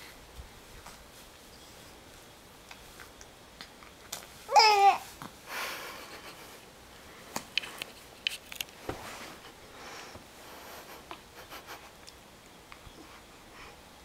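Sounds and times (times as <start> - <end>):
bedsheets and clothes rustling: 0.0 - 3.2, 4.0 - 12.0.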